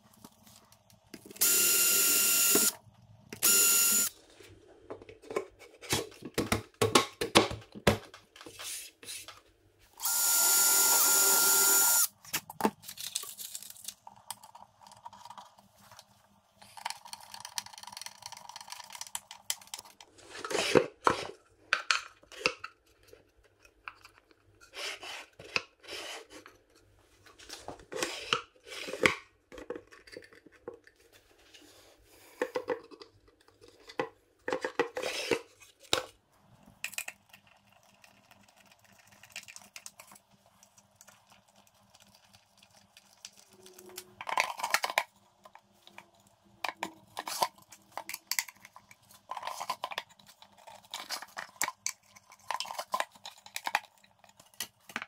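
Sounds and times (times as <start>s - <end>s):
cordless drill running: 1.4s - 2.8s, 3.4s - 4.1s, 10.0s - 12.1s.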